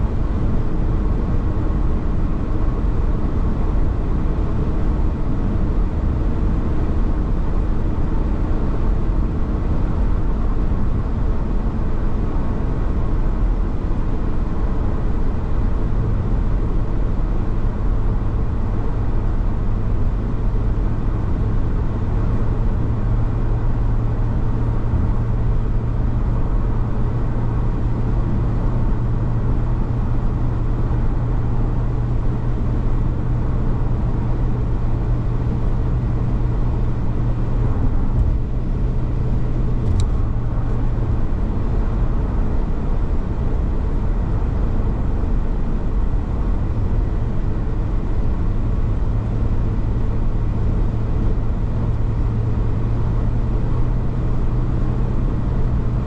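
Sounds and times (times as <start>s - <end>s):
car road noise on wet highway: 0.0s - 56.0s
low hum: 20.6s - 56.0s.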